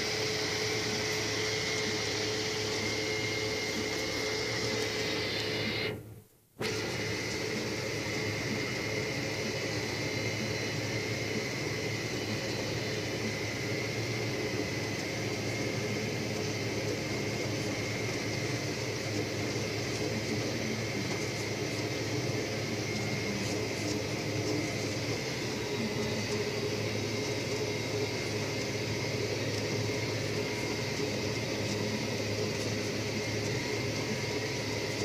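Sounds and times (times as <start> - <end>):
steady high whine: 0.0 - 35.0.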